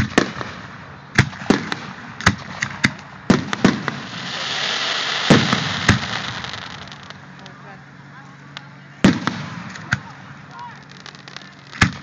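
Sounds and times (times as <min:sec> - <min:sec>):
fireworks bangs: 0:00.0 - 0:07.6, 0:09.0 - 0:12.0
fireworks hissing rush: 0:03.3 - 0:07.7, 0:09.1 - 0:12.0.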